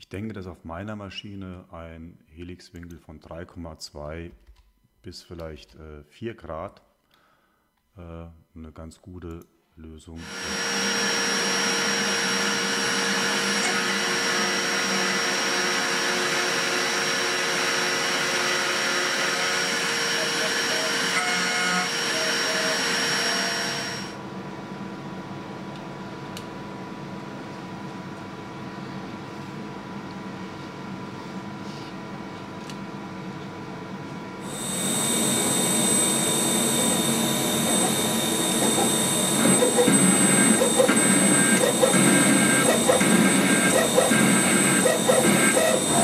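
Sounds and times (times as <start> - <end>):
drill boring into steel: 10.2 - 24.2, 34.4 - 46.0
milling machine spindle whine: 10.2 - 24.2, 34.4 - 46.0
steady hum: 19.4 - 46.0.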